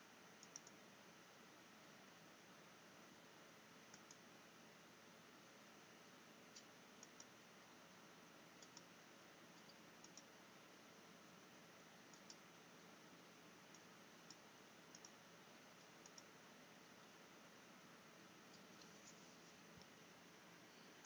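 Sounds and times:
steady low hiss: 0.0s - 21.0s
computer mouse buttons clicking: 0.4s - 0.8s, 3.9s - 4.2s, 6.5s - 7.3s, 8.6s - 8.9s, 9.6s - 10.3s, 12.1s - 12.4s, 13.7s - 15.2s, 15.8s - 16.3s.

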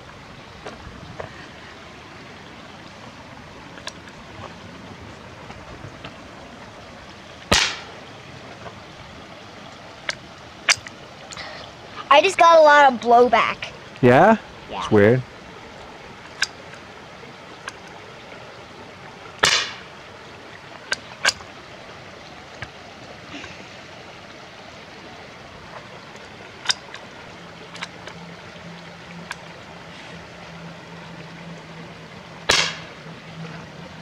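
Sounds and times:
rifle shot crack: 7.5s - 7.9s, 19.4s - 19.8s, 32.5s - 32.9s.

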